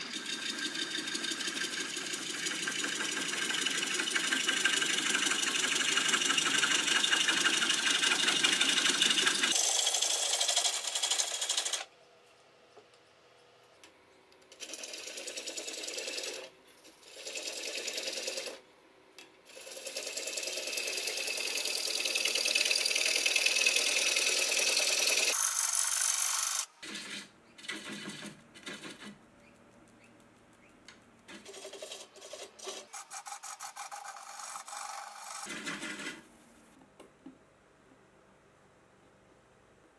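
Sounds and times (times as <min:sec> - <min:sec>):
tool cutting wood on a lathe: 0:00.0 - 0:11.8, 0:14.5 - 0:18.6, 0:19.5 - 0:29.0, 0:31.3 - 0:36.2.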